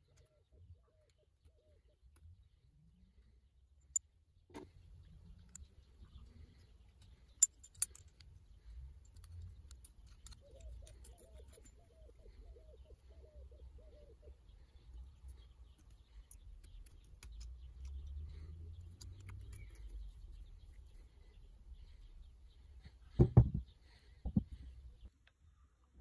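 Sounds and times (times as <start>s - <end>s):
metal clicks and taps of bolts: 7.0s - 8.4s, 9.1s - 11.6s.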